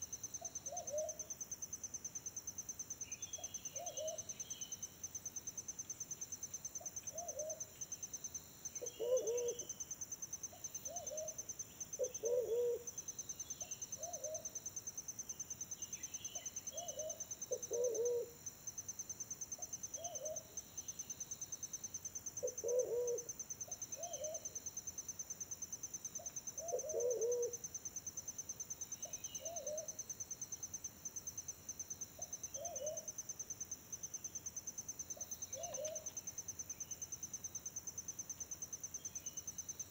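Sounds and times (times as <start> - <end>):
insect trill: 0.0 - 39.9
pigeons cooing: 9.0 - 9.6, 12.0 - 12.8, 16.9 - 18.3, 22.4 - 23.2, 26.6 - 27.5.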